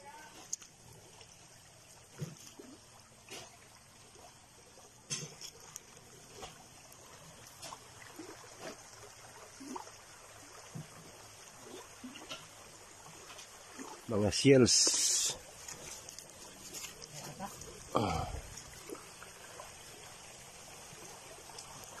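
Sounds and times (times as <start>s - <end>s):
low hiss: 13.9s - 15.7s.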